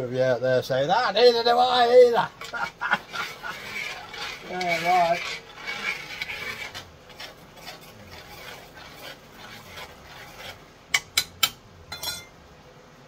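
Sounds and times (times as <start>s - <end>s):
spoon scraping in a pan: 2.4s - 12.3s.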